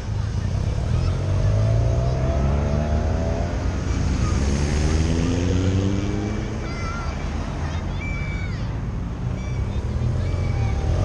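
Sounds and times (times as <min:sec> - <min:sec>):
vehicle engine passing by: 0:00.0 - 0:07.7.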